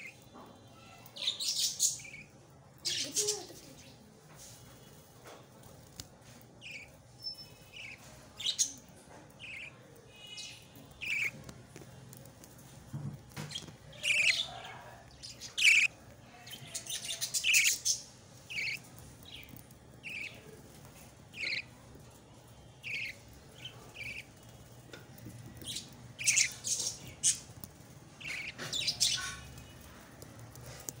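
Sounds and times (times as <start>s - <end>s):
budgie chick chirping: 9.4s - 11.4s, 13.4s - 15.9s, 17.1s - 18.9s, 21.4s - 21.7s, 22.8s - 24.3s, 25.6s - 27.5s, 28.2s - 29.4s.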